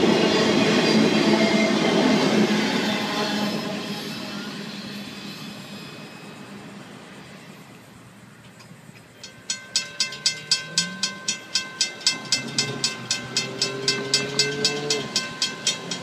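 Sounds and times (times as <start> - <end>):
crossing bell ringing: 9.2 - 16.0.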